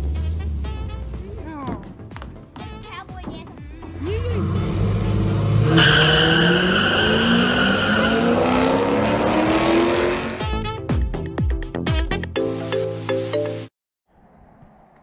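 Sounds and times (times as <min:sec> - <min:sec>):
car engines revving: 0:03.8 - 0:10.5.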